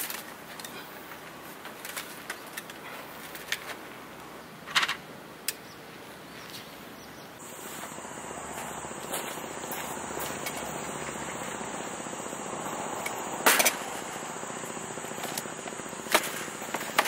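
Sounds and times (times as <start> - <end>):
clicks and knocks of parasol: 0.0 - 3.9
faint birds: 5.4 - 17.0
insects: 7.4 - 17.0
steady high tone: 7.4 - 17.0.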